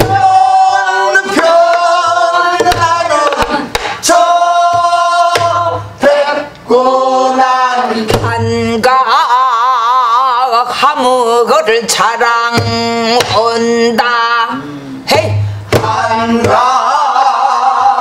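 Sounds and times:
barrel drum struck with stick: 0:15.1 - 0:16.6.

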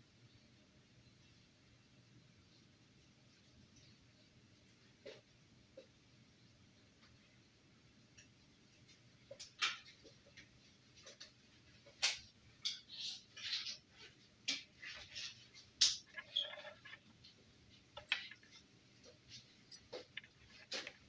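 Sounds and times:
probe leads clicking and rustling: 0:09.3 - 0:21.0.

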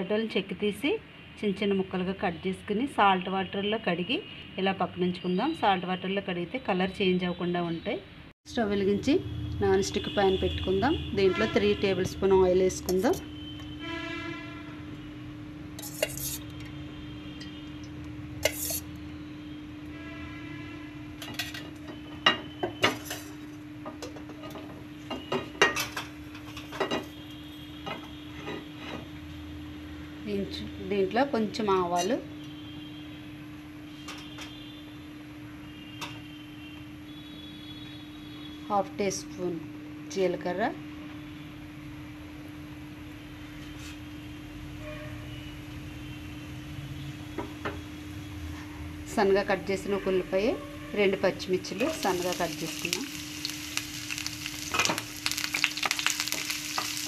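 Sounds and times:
hot oil sizzling with seeds: 0:15.7 - 0:16.6, 0:17.9 - 0:19.1, 0:51.1 - 0:57.0
spatula scraping frying pan: 0:15.8 - 0:16.5, 0:18.4 - 0:18.9
constant low hum: 0:47.3 - 0:57.0.

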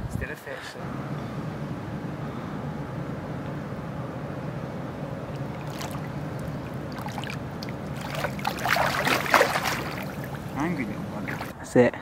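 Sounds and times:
steady low drone: 0:00.8 - 0:11.5
water splashing: 0:04.9 - 0:11.5.

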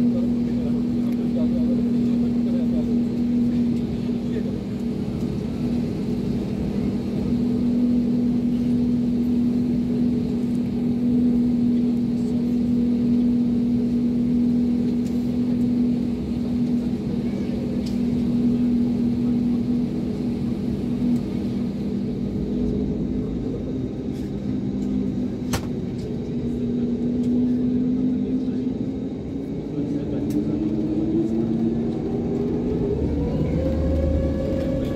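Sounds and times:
jet engines idling: 0:00.0 - 0:34.9.

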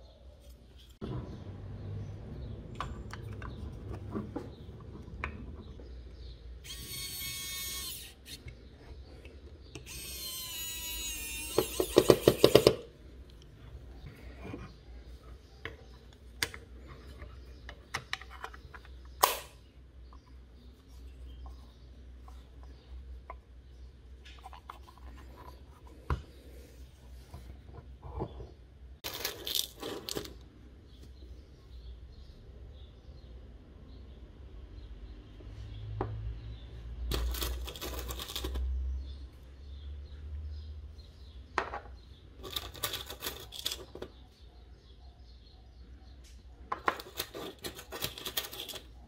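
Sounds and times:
electric screwdriver whirring: 0:06.6 - 0:08.4, 0:09.8 - 0:12.8.

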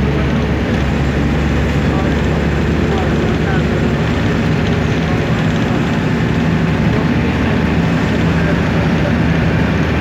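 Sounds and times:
vehicle engine and road noise: 0:00.0 - 0:10.0.

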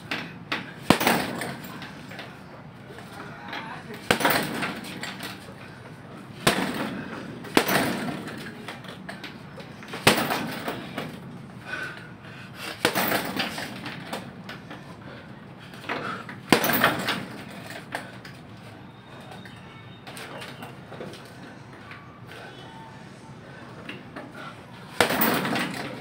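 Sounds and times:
gloves punching heavy bag: 0:00.1 - 0:01.8, 0:04.0 - 0:05.2, 0:06.4 - 0:08.7, 0:09.9 - 0:11.1, 0:12.6 - 0:14.2, 0:16.2 - 0:18.3, 0:24.9 - 0:26.0.

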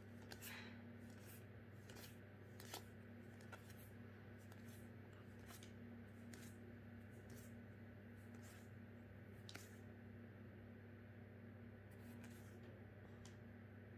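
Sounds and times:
low steady hum: 0:00.0 - 0:13.9
cards sliding: 0:00.2 - 0:06.6.

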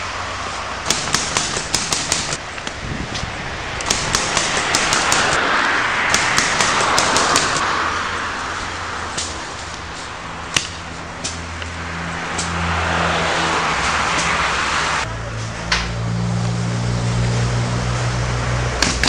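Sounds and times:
wind rushing on microphone: 0:02.4 - 0:09.1.

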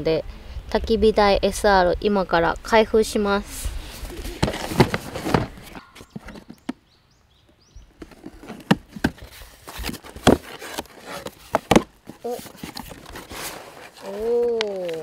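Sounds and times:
cardboard box being handled: 0:03.8 - 0:06.8, 0:08.0 - 0:15.0.

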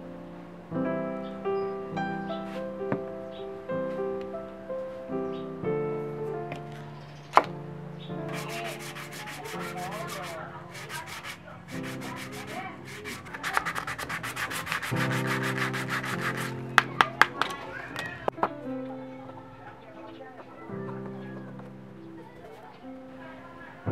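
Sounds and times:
soft piano music: 0:00.0 - 0:23.9
sandpaper rubbing: 0:08.3 - 0:16.9.

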